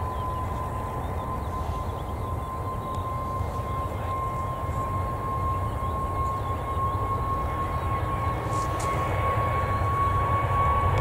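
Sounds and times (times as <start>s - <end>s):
faint bird chirps: 0.0s - 8.8s
distant jet engines rumbling: 0.0s - 11.0s.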